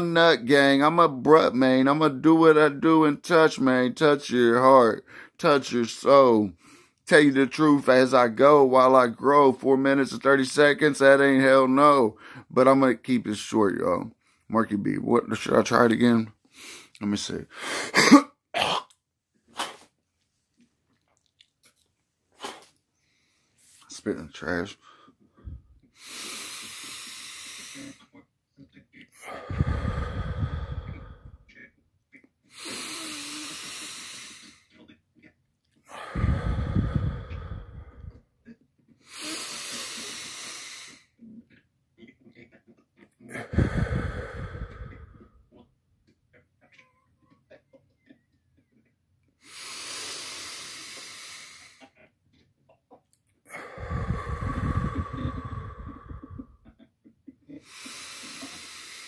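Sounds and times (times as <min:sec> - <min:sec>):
man breathing forcefully: 0:17.5 - 0:18.0, 0:24.8 - 0:28.0, 0:29.2 - 0:31.5, 0:32.5 - 0:34.6, 0:35.8 - 0:38.2, 0:39.0 - 0:41.1, 0:43.3 - 0:45.4, 0:49.4 - 0:51.8, 0:53.4 - 0:56.7, 0:57.5 - 0:59.0
low rumble on microphone: 0:36.2 - 0:38.2, 0:53.8 - 0:56.7.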